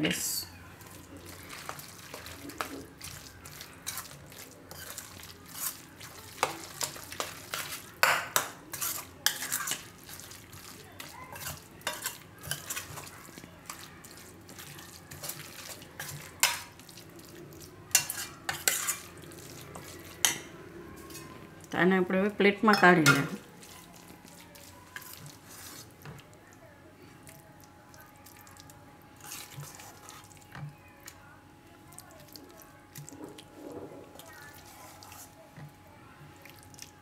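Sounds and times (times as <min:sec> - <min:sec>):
spoon mashing wet food: 0:00.8 - 0:21.7, 0:22.6 - 0:26.6, 0:27.2 - 0:37.0
spoon scraping metal bowl: 0:04.7 - 0:05.8, 0:06.4 - 0:09.9, 0:17.9 - 0:19.1.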